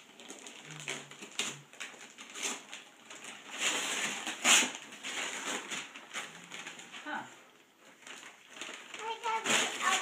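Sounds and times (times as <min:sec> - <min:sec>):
wrapping paper tearing: 0:00.0 - 0:07.1, 0:07.8 - 0:10.0.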